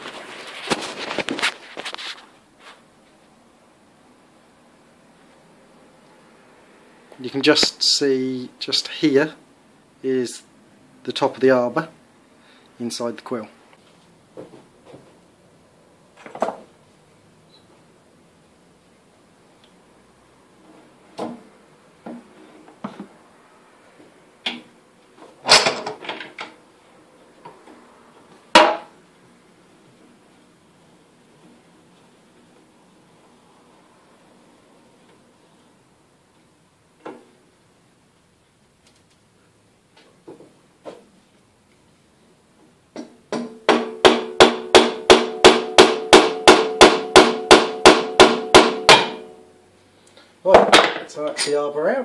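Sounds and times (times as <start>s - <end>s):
wooden block knocking on metal: 43.0s - 49.3s
wooden mallet tapping metal: 43.4s - 49.3s.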